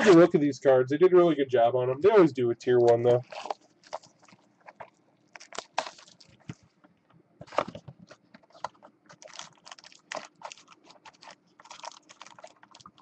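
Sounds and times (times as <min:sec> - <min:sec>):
packaging scraping rustles: 0:03.2 - 0:06.8, 0:07.4 - 0:13.0.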